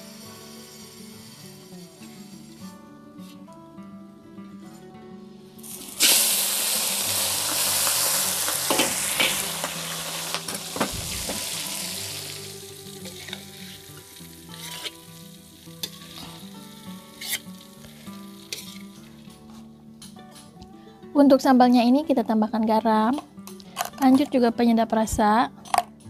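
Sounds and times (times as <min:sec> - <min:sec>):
vegetables sizzling in hot oil: 0:00.0 - 0:02.2, 0:05.6 - 0:19.3.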